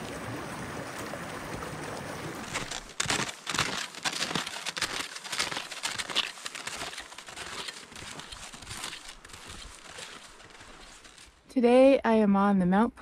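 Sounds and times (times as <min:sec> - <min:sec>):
footsteps crunching in snow: 0:02.4 - 0:11.4.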